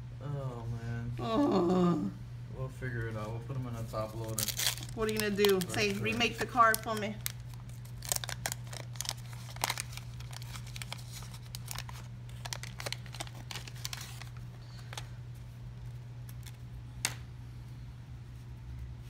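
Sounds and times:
steady low hum: 0:00.0 - 0:19.0
cards and wrappers crinkling: 0:03.1 - 0:17.2.

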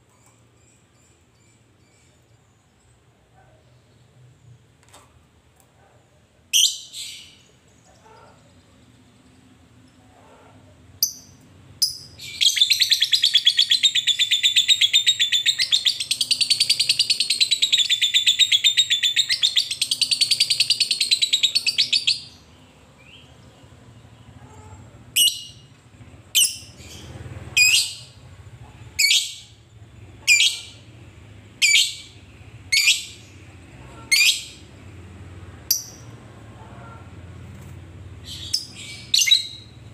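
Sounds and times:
lovebird chattering trill: 0:25.2 - 0:25.7.

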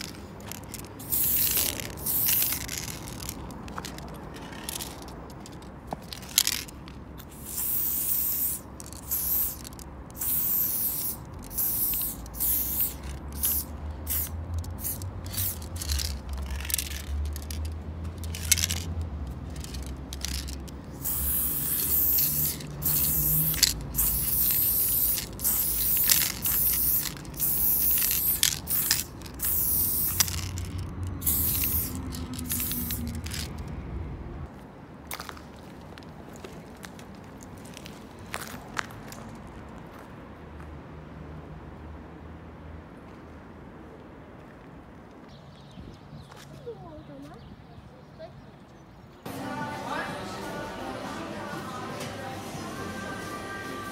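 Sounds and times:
spray paint can hissing: 0:00.0 - 0:05.5, 0:06.1 - 0:33.6.

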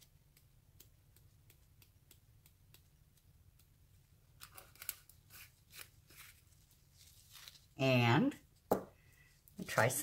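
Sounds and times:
crinkly rustle: 0:04.4 - 0:07.8.

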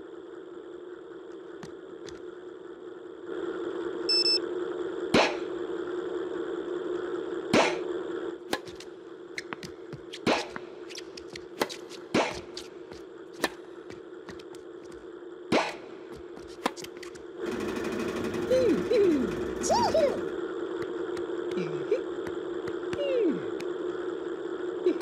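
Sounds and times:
racket striking ball: 0:08.5 - 0:12.6, 0:13.4 - 0:13.7, 0:16.4 - 0:17.2
ball machine humming: 0:08.5 - 0:15.0, 0:15.6 - 0:21.6
tennis balls bouncing: 0:08.5 - 0:17.2.

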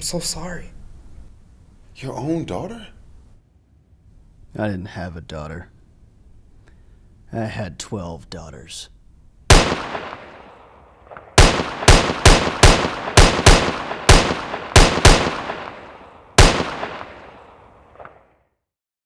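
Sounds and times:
revolver gunshots echoing: 0:09.5 - 0:18.4.

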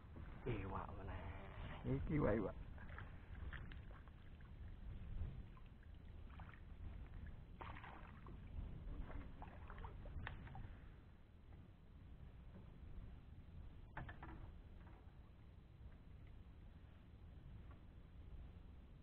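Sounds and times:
low steady rumble: 0:00.0 - 0:19.0
small water splashes: 0:02.6 - 0:10.8.

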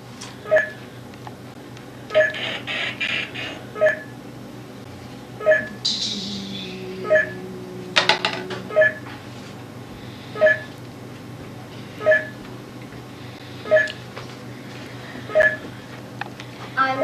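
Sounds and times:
two-tone electronic beep: 0:05.4 - 0:07.4, 0:08.7 - 0:09.0, 0:12.0 - 0:12.3, 0:13.7 - 0:13.9.

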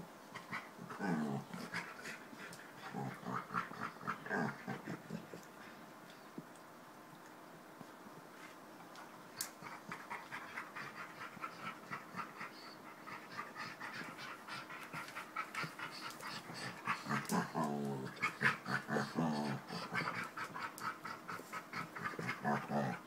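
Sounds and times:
dog growling: 0:00.4 - 0:02.2, 0:02.8 - 0:05.4, 0:09.6 - 0:23.0
dogs panting rapidly: 0:09.5 - 0:17.4, 0:18.0 - 0:23.0.

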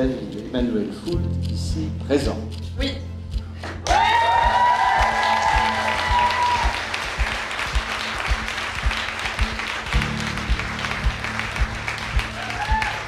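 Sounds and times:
background music with steady beat: 0:00.0 - 0:13.0
guests applauding: 0:03.6 - 0:13.0.

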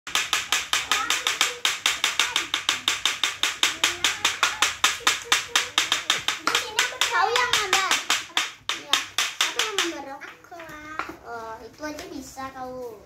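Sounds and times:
rapid clapping: 0:00.1 - 0:10.0.

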